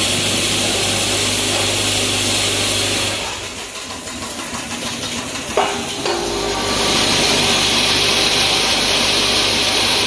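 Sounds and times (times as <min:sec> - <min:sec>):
packaging machine hiss and hum: 0:00.0 - 0:03.6, 0:05.8 - 0:10.0.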